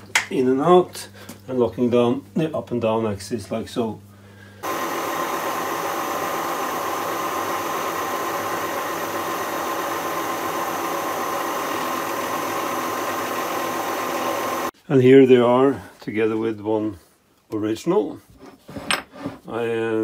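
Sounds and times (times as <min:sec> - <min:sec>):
milling machine running: 0:04.6 - 0:14.7.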